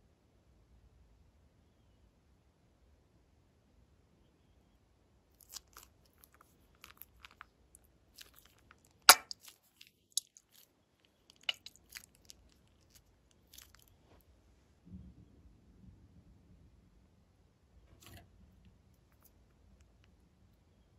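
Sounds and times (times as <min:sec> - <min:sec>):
slime crackles and pops: 0:08.2 - 0:10.6, 0:11.3 - 0:13.9.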